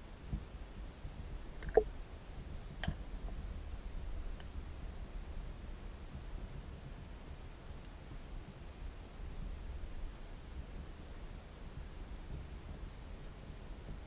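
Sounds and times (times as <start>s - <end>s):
faint high ticks: 0.2s - 3.5s, 4.3s - 6.4s, 7.5s - 14.0s
low underwater rumble: 1.4s - 2.0s.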